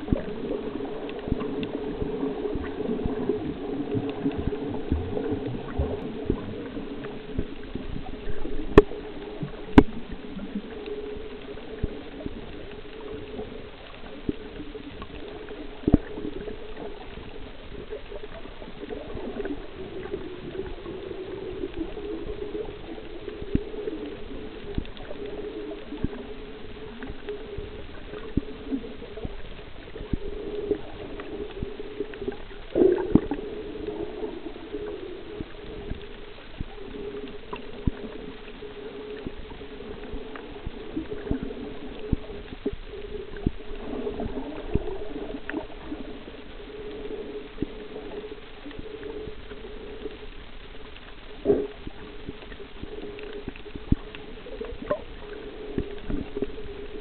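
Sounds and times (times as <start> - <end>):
sharp underwater clicks: 0.0 - 57.0
underwater wavering hum: 0.0 - 57.0.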